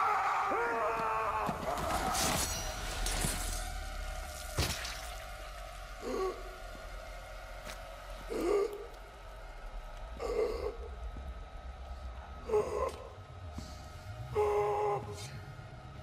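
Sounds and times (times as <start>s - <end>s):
man groaning: 12.4s - 13.2s.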